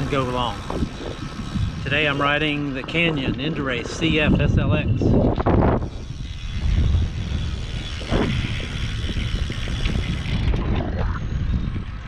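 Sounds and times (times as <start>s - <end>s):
bike tyres rumbling on pavement: 0.0s - 12.0s
rapid mechanical ticking and rattling: 0.0s - 12.0s
wind on microphone: 0.0s - 12.0s.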